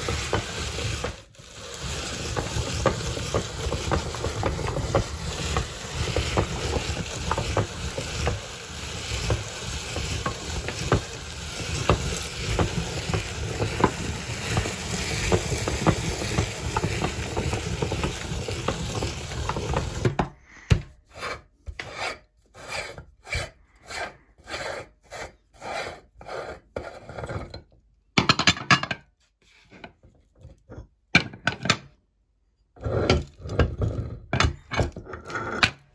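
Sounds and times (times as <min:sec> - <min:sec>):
meat grinder crunching chips: 0:00.0 - 0:20.7.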